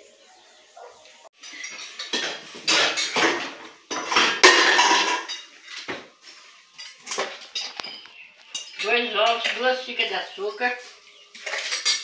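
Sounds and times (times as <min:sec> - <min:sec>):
dishes and pots clattering: 0:01.4 - 0:09.6, 0:11.3 - 0:12.0.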